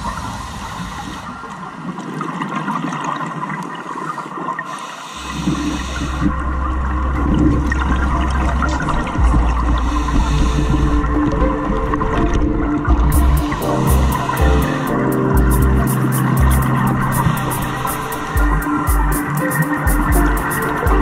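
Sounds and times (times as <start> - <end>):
water rushing and gurgling: 0.0 - 21.0
deep steady bass note: 6.2 - 11.5, 12.9 - 21.0
background music: 6.6 - 21.0.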